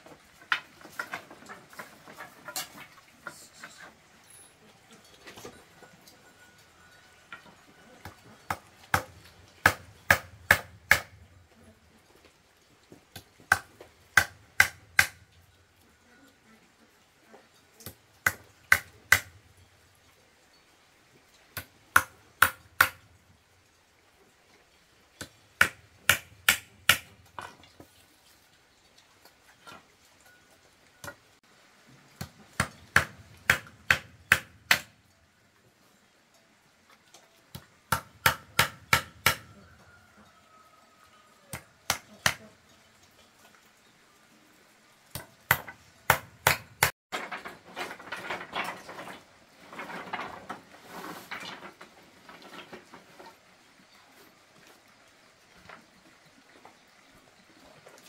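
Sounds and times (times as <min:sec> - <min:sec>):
sharp blows on wood: 0:25.6 - 0:27.2, 0:32.6 - 0:34.9, 0:37.9 - 0:39.5.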